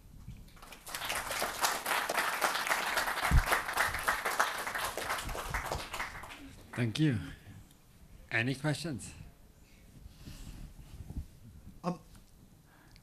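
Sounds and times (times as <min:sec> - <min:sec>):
audience applauding: 0:00.6 - 0:07.0.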